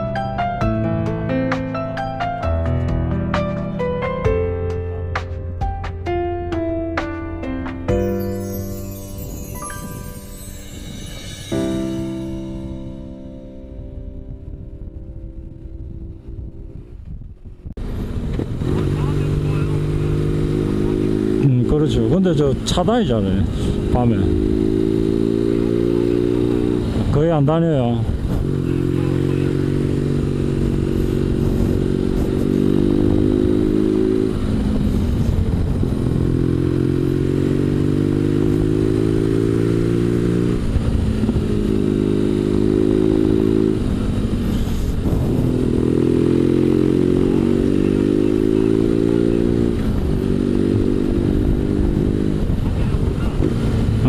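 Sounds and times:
motorcycle engine accelerating: 13.8s - 54.0s
wind rushing: 37.3s - 48.1s.

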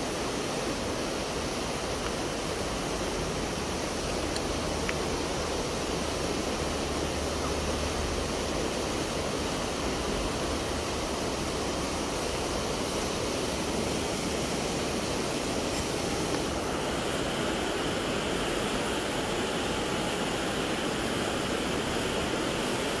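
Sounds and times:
fast river rushing: 0.0s - 23.0s.

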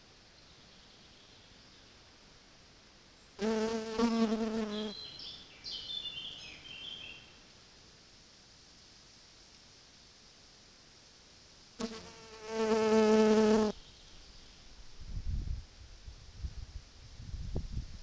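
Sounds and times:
flying insect buzzing: 3.4s - 4.9s, 11.8s - 13.8s.

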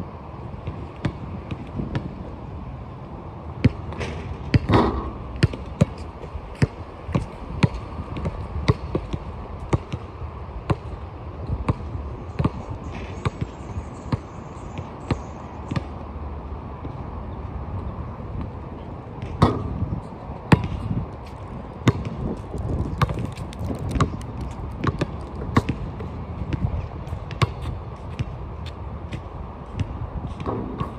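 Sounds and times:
basketballs bouncing on court: 3.6s - 3.9s, 4.5s - 10.1s, 10.7s - 10.9s, 11.6s - 12.6s, 20.5s - 20.9s, 21.8s - 28.4s, 29.1s - 30.9s.

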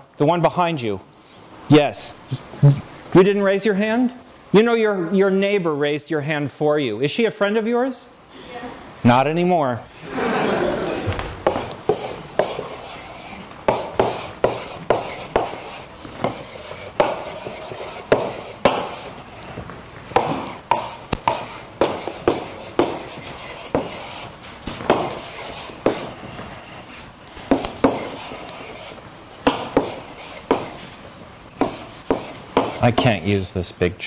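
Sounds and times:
chalk writing on blackboard: 11.4s - 19.2s, 20.2s - 26.2s, 27.5s - 30.8s, 31.6s - 33.4s.

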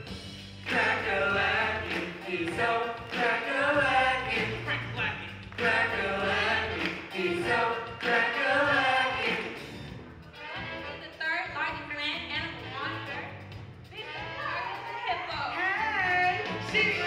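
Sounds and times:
backing track with bass line: 0.0s - 17.0s
cast singing in chorus: 5.6s - 9.6s.

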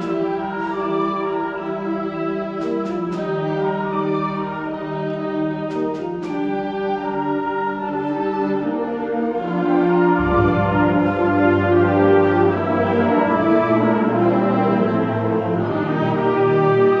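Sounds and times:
concert band wind chords: 0.0s - 17.0s
low brass and bass: 9.6s - 17.0s.

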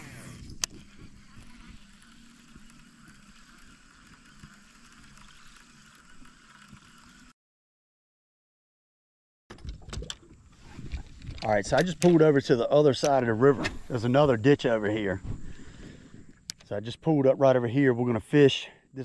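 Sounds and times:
fishing reel winding: 0.0s - 7.3s.

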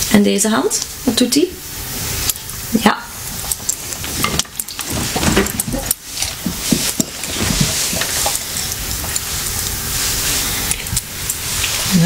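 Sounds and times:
steady hiss: 0.0s - 12.0s
rustling: 3.3s - 12.0s.

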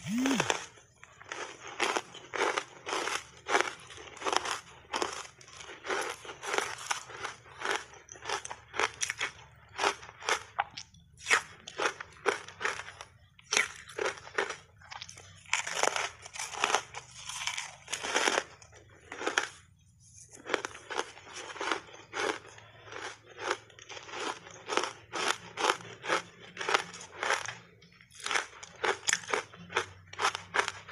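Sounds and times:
crunching ice: 0.0s - 19.6s, 20.3s - 30.9s.

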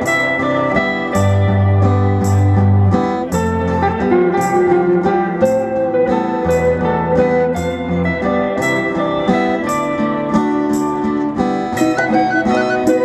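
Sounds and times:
live band playing: 0.0s - 13.0s
wind instrument melody: 11.6s - 13.0s.

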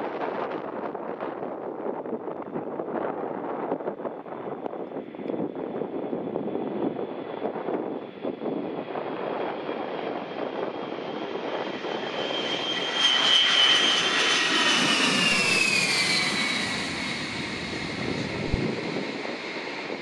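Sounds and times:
jet engines passing: 4.9s - 20.0s.

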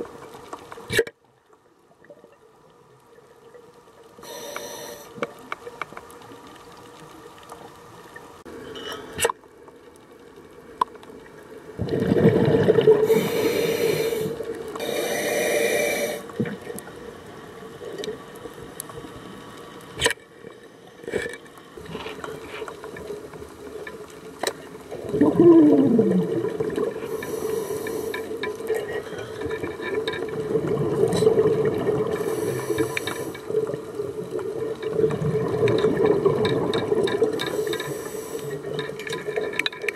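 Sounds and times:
exhaled bubbles rushing underwater: 11.6s - 16.9s, 24.8s - 39.6s
steady hum: 12.8s - 17.8s.

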